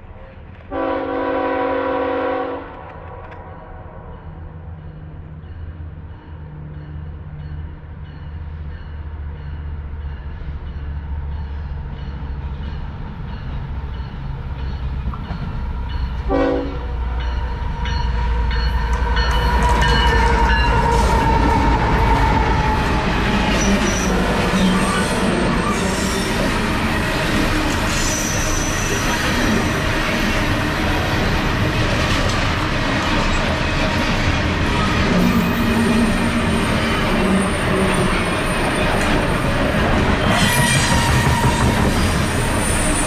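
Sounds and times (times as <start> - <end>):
train cars clattering on rails: 17.2 - 43.0.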